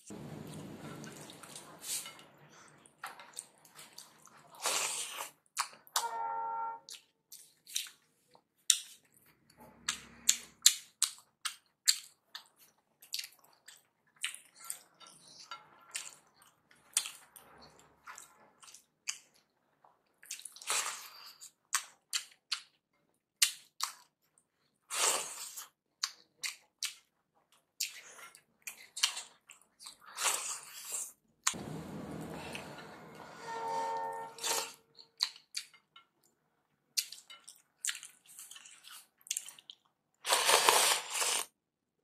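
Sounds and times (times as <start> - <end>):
chewing and lip smacks: 9.9 - 16.2.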